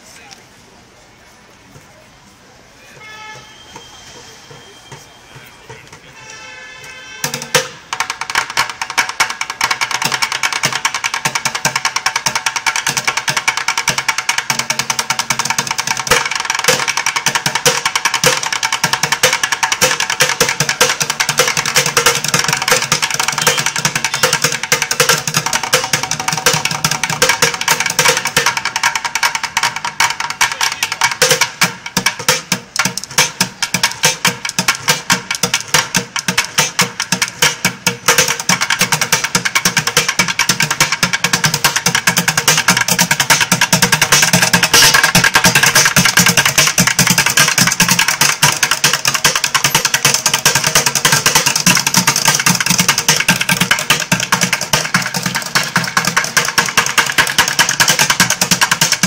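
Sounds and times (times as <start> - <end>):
drumsticks on plastic buckets: 4.5 - 59.0.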